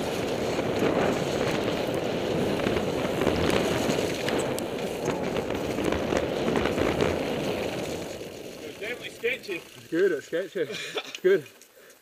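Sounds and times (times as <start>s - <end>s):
wind on microphone: 0.0s - 8.2s
bike clicks and rattles: 0.0s - 12.0s
bike tyre noise: 0.0s - 12.0s.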